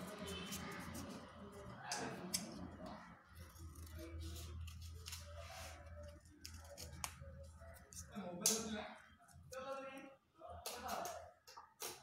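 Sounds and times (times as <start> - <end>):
paper and tape rustling: 3.4 - 8.1.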